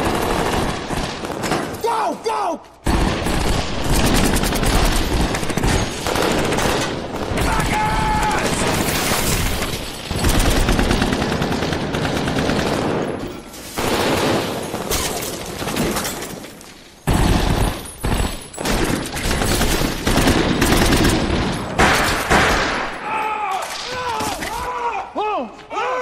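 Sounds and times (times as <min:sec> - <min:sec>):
rifle and handgun shots: 0:17.0 - 0:23.0.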